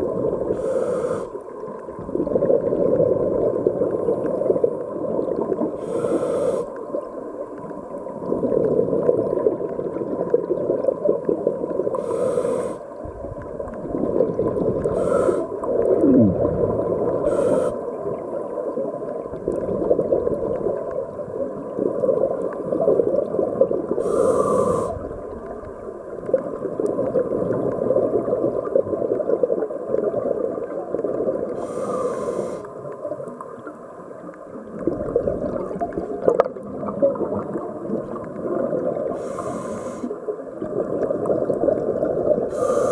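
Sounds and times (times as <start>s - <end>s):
exhaled air bubbling: 0.0s - 42.9s
regulator inhale hiss: 0.5s - 1.4s, 5.8s - 6.9s, 11.9s - 13.0s, 14.8s - 15.8s, 17.2s - 18.0s, 24.0s - 25.3s, 31.5s - 32.8s, 39.1s - 40.2s, 42.5s - 42.9s.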